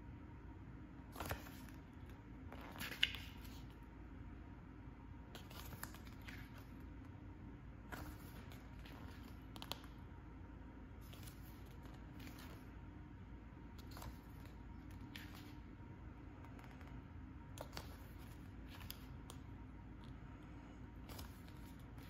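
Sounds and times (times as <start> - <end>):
low room hum: 0.0 - 22.0
paper pages rustling: 1.1 - 3.7, 5.4 - 6.8, 7.9 - 10.0, 11.0 - 12.7, 13.8 - 15.6, 17.6 - 19.4, 21.0 - 22.0.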